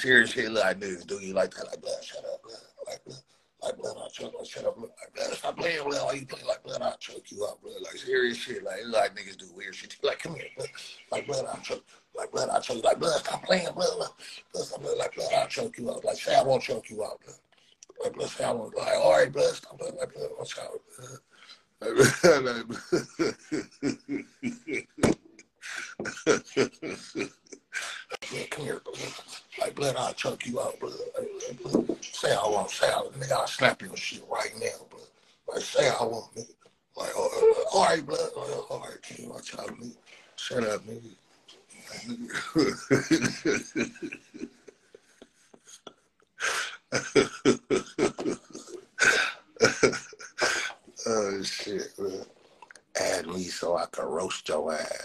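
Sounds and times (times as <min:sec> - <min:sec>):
person's voice bursts: 0:00.0 - 0:17.3, 0:18.0 - 0:21.2, 0:21.8 - 0:36.4, 0:37.0 - 0:41.1, 0:41.7 - 0:44.5, 0:46.4 - 0:52.2, 0:53.0 - 0:55.0
person laughing: 0:00.2 - 0:16.8, 0:21.8 - 0:34.8, 0:37.0 - 0:39.9, 0:41.8 - 0:44.7, 0:46.4 - 0:52.2, 0:53.0 - 0:55.0.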